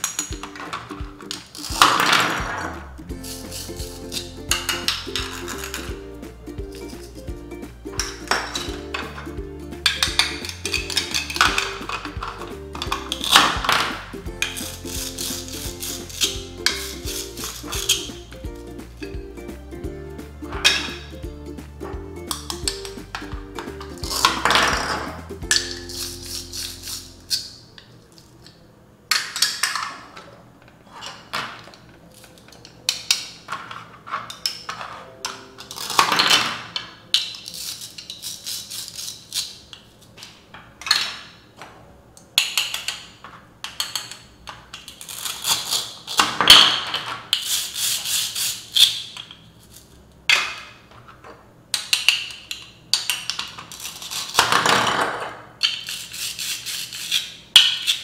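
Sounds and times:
plastic toy pieces clicking: 42.4s - 47.6s, 51.7s - 54.7s
rasping rips: 45.0s - 46.2s.

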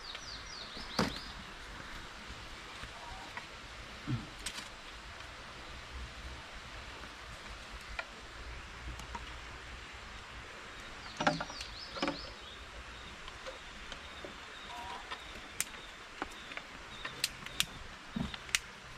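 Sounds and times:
steady hiss: 0.0s - 18.9s
dry twigs snapping and crackling: 4.4s - 4.8s, 15.1s - 18.7s.

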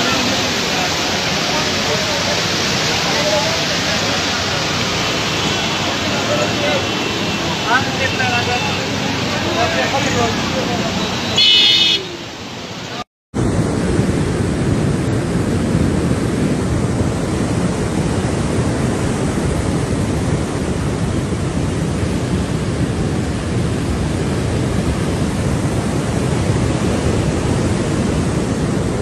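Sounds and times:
floodwater rushing: 0.0s - 13.8s.

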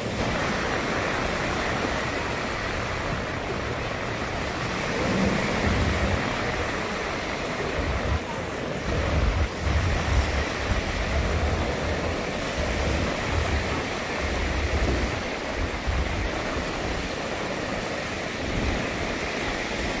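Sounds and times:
waves breaking on beach: 0.0s - 20.0s.

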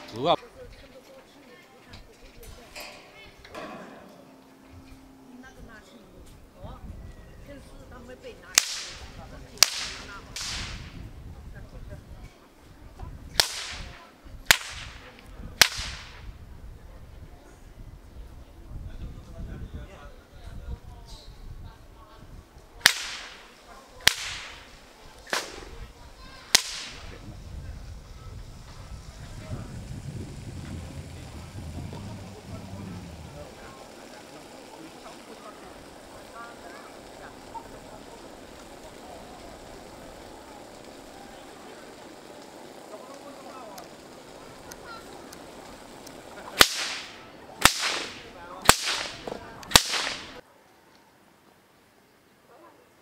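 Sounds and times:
loud sharp cracks with echo: 8.5s - 11.0s, 13.4s - 16.3s, 22.8s - 25.7s, 26.4s - 27.2s, 46.4s - 50.4s.

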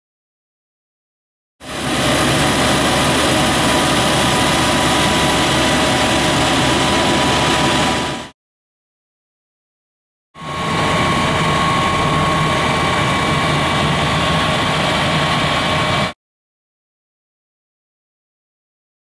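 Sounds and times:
fire truck engine running: 1.6s - 8.3s, 10.6s - 16.1s.

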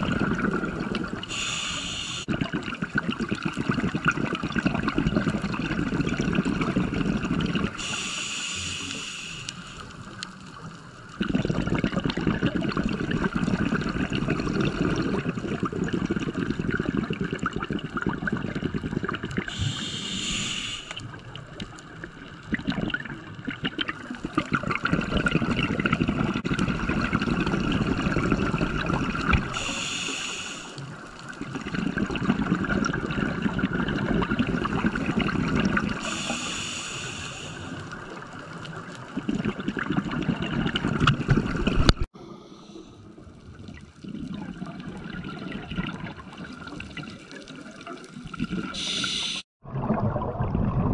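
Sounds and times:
exhaled bubbles gurgling: 0.0s - 9.3s, 9.9s - 50.9s
regulator breath hisses: 1.3s - 2.3s, 7.8s - 9.9s, 19.5s - 21.0s, 29.5s - 30.8s, 36.0s - 37.8s, 42.2s - 43.1s, 48.8s - 49.5s.

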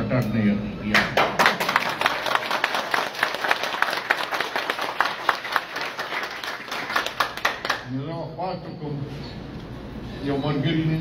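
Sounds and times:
audience applause: 1.2s - 7.9s.

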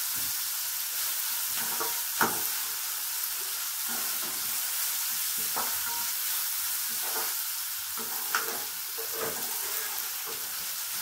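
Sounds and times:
vegetables sizzling in a wok: 0.0s - 11.0s
spatula clacking on pan: 1.6s - 2.6s, 5.3s - 6.2s
metal spatula scraping a pan: 5.3s - 11.0s.

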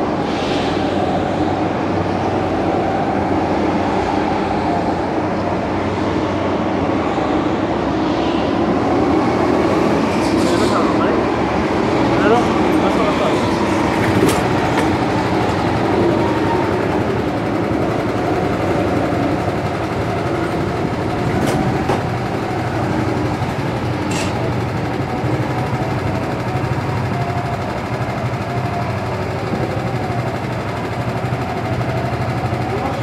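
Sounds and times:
go-kart engines idling: 10.1s - 33.0s.

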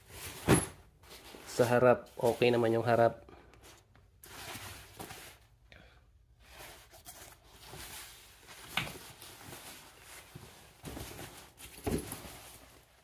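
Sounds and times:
nylon fabric rustling: 6.5s - 13.0s.

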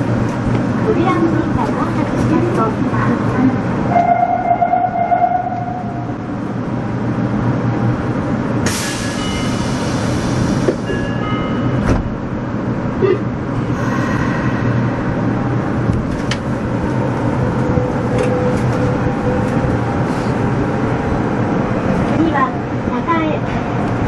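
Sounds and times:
stopped train humming: 0.0s - 24.0s
loud air hiss: 8.6s - 10.9s.

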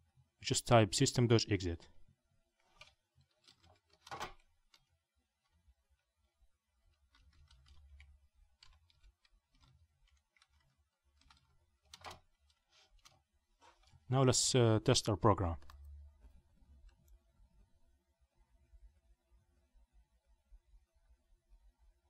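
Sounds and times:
loud keyboard clicks: 2.7s - 4.9s, 6.9s - 13.2s
computer keyboard keystrokes: 7.1s - 13.2s.

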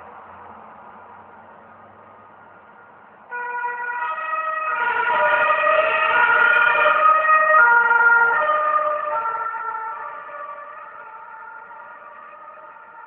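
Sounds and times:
two-tone emergency siren passing: 3.3s - 13.0s.

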